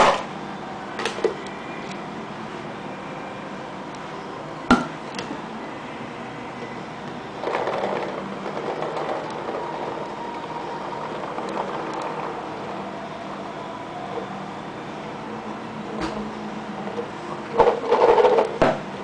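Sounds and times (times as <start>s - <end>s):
paintballs rattling in hopper: 7.4s - 12.4s, 17.6s - 18.6s.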